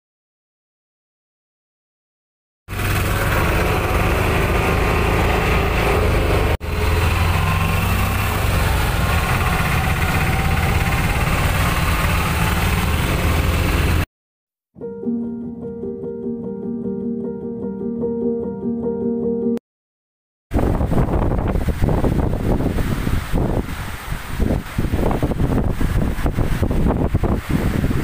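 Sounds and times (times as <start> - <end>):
small auto-rickshaw engine running: 2.7 - 14.1.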